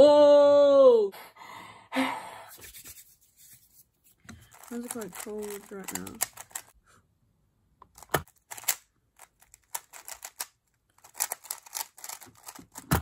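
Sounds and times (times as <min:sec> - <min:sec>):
puzzle cube plastic clicks: 0:04.5 - 0:06.7, 0:07.8 - 0:13.0.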